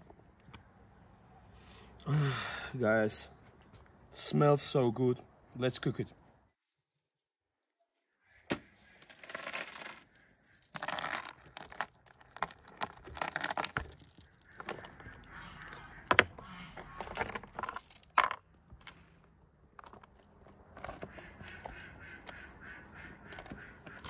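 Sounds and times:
steel chain clinking and rattling: 9.1s - 15.2s, 15.9s - 18.4s, 19.8s - 20.2s, 23.2s - 24.0s.

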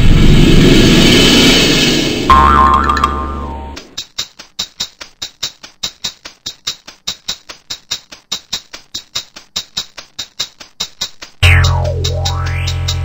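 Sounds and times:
light percussive taps: 3.8s - 12.8s.

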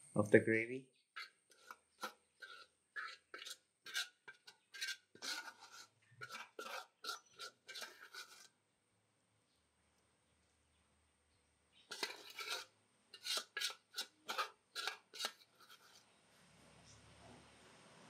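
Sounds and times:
steel spoon scraping gravy: 1.1s - 8.6s, 11.9s - 16.2s.

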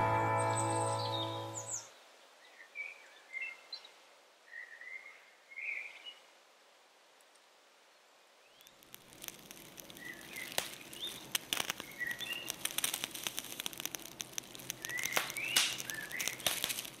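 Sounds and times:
crackling clicks: 8.6s - 17.0s.

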